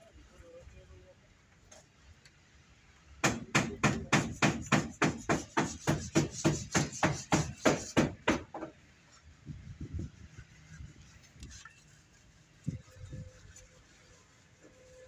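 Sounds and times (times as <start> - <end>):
fast hammer blows: 3.2 - 8.5.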